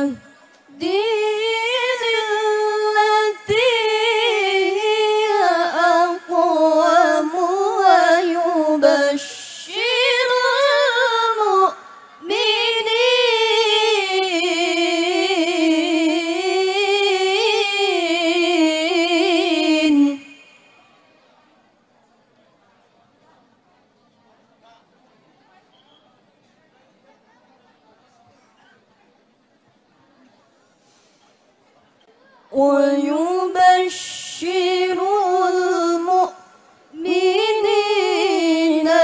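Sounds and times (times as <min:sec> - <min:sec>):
woman chanting into a microphone: 0:00.0 - 0:20.8, 0:32.5 - 0:39.0.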